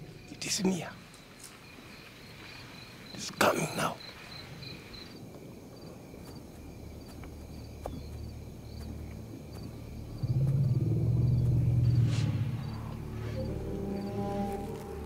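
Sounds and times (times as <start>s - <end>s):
insects chirping: 0.0s - 15.0s
faint low hum: 4.7s - 15.0s
low droning music: 7.9s - 15.0s.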